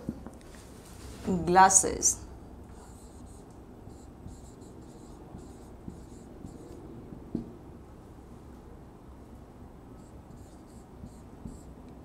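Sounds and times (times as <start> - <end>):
marker squeaking on whiteboard: 2.7 - 6.8, 10.0 - 11.8.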